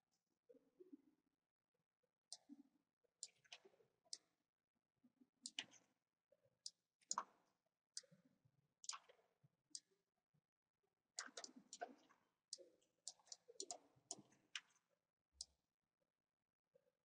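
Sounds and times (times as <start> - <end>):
computer mouse clicks: 11.2 - 12.0, 12.6 - 14.7.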